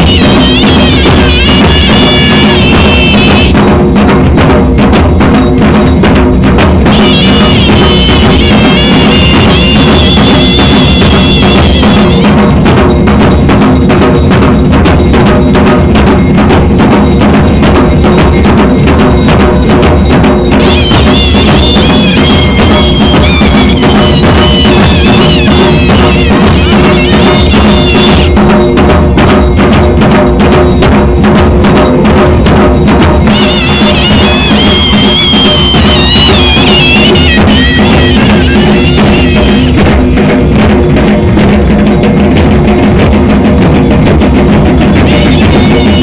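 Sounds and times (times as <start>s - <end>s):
high wavering pipe melody: 0.0s - 3.5s, 6.9s - 12.3s, 20.6s - 28.3s, 33.3s - 40.0s
drums beating fast rhythm: 0.0s - 46.0s.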